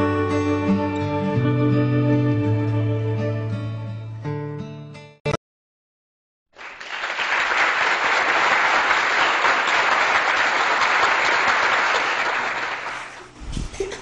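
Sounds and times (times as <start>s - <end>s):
applause: 6.5s - 13.3s.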